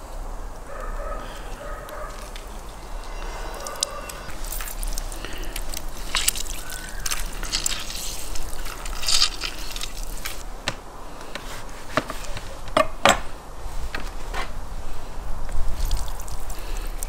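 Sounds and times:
wet squelches: 0:00.7 - 0:10.4, 0:15.6 - 0:17.0
lemon juice squirting and dripping: 0:03.3 - 0:10.4, 0:15.7 - 0:17.0.

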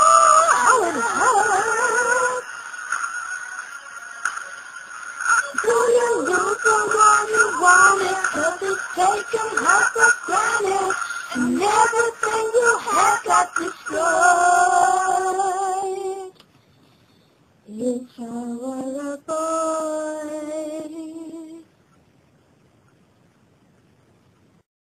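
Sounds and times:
girls singing long notes: 0:00.0 - 0:02.4, 0:05.4 - 0:16.3
faint room hiss: 0:00.0 - 0:24.7.

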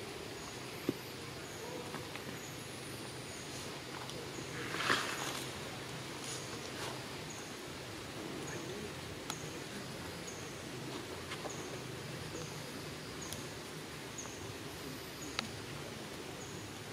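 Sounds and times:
steady hiss: 0:00.0 - 0:16.9
faint clicks: 0:09.2 - 0:09.5, 0:15.3 - 0:16.2.

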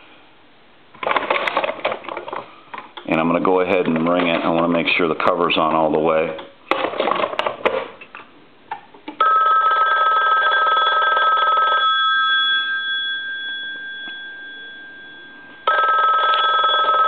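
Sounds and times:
telephone bells ringing: 0:09.2 - 0:17.0.

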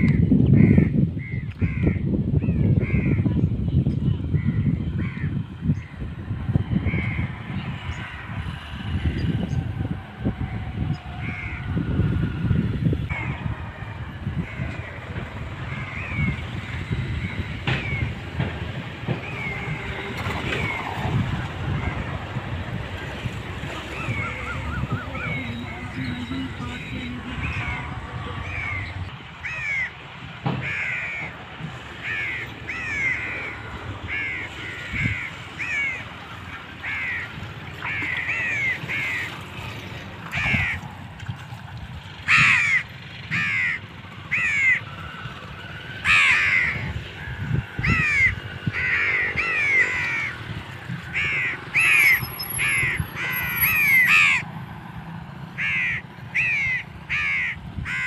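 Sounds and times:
crows cawing: 0:00.0 - 0:03.3, 0:04.4 - 0:18.2, 0:27.4 - 0:30.0, 0:30.6 - 0:39.4, 0:40.3 - 0:40.9, 0:42.2 - 0:54.5, 0:55.6 - 0:58.0.

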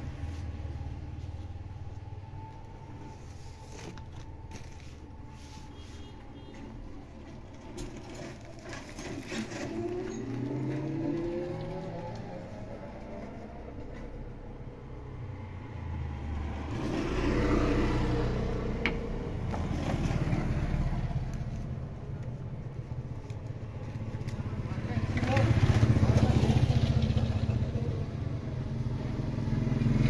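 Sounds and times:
vehicle engines passing: 0:00.0 - 0:30.0.

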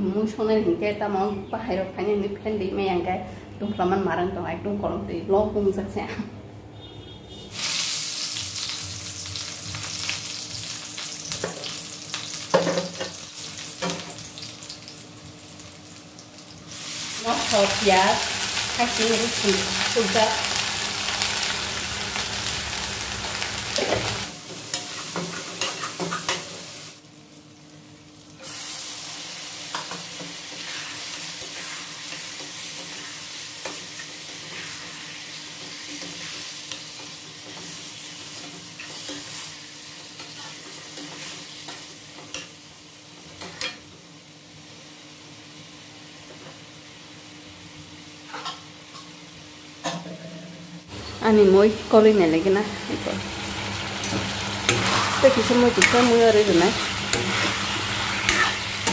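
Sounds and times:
food sizzling in a pan: 0:07.5 - 0:58.9
metal ladle scraping a pan: 0:54.7 - 0:58.9.

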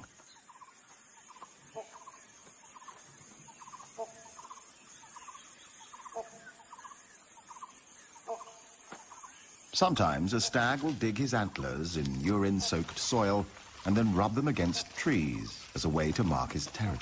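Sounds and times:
lower bird calls: 0:00.0 - 0:10.4
small birds chirping: 0:00.0 - 0:17.0.

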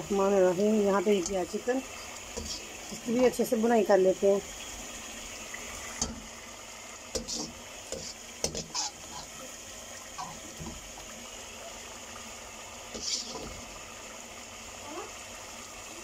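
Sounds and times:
gravy simmering hiss: 0:00.0 - 0:16.0
metal ladle scraping a wok: 0:01.2 - 0:03.4, 0:07.1 - 0:09.4, 0:13.0 - 0:13.6.

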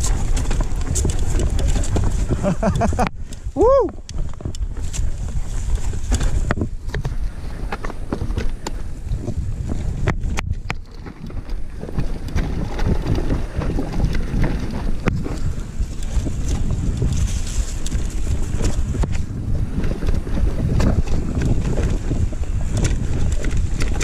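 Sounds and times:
bike rattling over bumps: 0:00.0 - 0:24.0
tyres rumbling on dirt: 0:00.0 - 0:24.0
wind buffeting microphone: 0:00.0 - 0:24.0.

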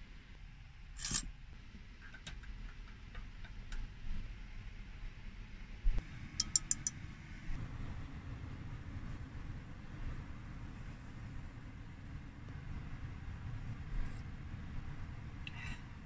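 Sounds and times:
spoon tapping glass rim: 0:06.4 - 0:06.9
teaspoon clinking in glass: 0:06.4 - 0:06.9.

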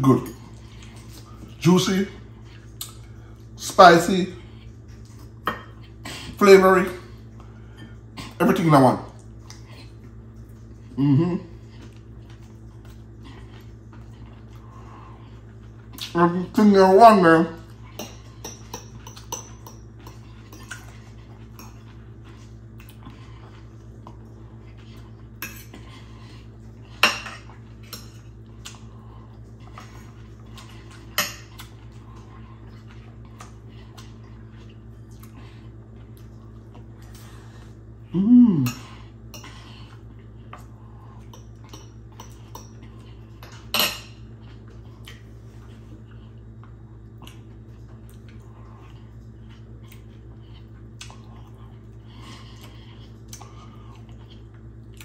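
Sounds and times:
steady low hum: 0:00.0 - 0:55.0
person humming: 0:11.0 - 0:11.5, 0:38.1 - 0:38.8.

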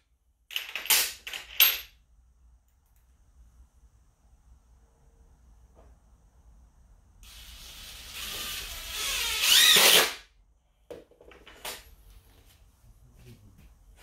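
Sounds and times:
cordless drill running: 0:07.2 - 0:10.2.

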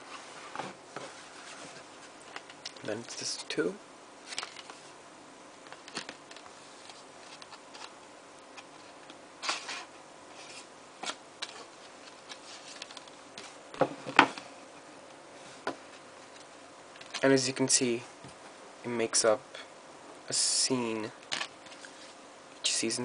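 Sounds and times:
paper rustling: 0:04.3 - 0:04.9, 0:05.6 - 0:07.9, 0:08.6 - 0:13.6.

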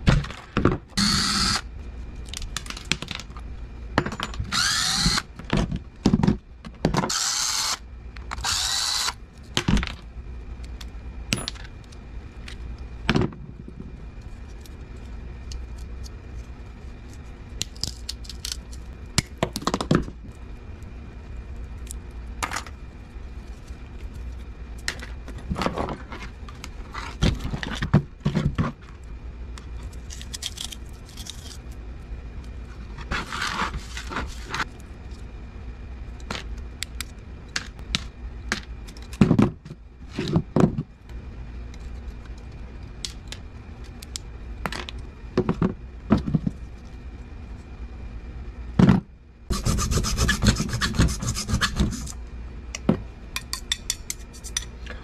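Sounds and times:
cordless drill running: 0:01.0 - 0:01.6, 0:04.5 - 0:05.3, 0:07.1 - 0:07.8, 0:08.4 - 0:09.2.

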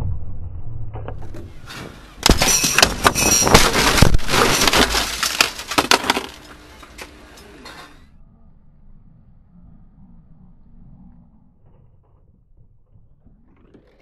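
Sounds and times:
car body crashing onto asphalt: 0:02.2 - 0:06.4.

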